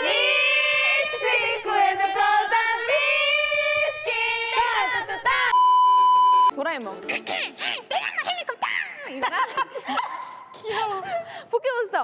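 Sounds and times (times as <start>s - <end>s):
women singing together: 0.0s - 5.6s.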